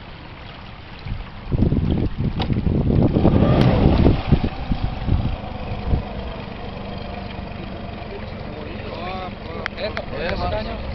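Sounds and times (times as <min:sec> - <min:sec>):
wind buffeting microphone: 0:01.0 - 0:10.9
outboard motor idling: 0:02.4 - 0:10.9.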